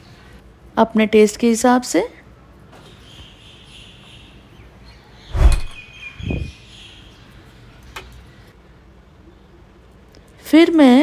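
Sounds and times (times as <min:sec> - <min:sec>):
faint high chirping: 0:03.0 - 0:07.7.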